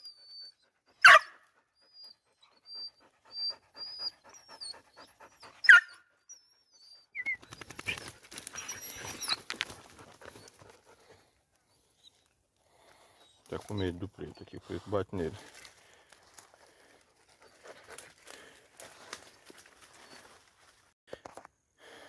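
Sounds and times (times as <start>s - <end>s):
dogs panting: 0.0s - 6.3s, 7.3s - 20.4s
dog yelps: 0.0s - 10.6s
rustling and scuffling: 7.6s - 11.1s, 15.4s - 21.5s.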